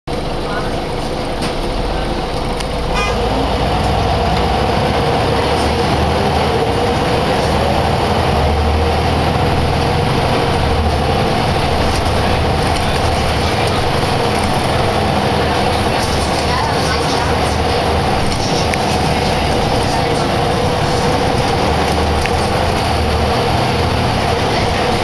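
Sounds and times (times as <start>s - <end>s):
bus diesel engine humming: 0.1s - 25.0s.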